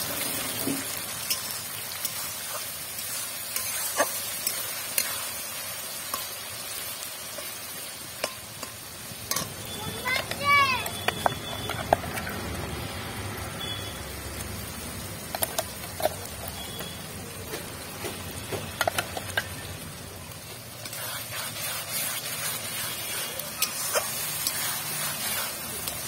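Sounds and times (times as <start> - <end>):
tomatoes sizzling in oil: 0.0 - 26.0
metal spoon clinking on bowl: 8.2 - 9.6.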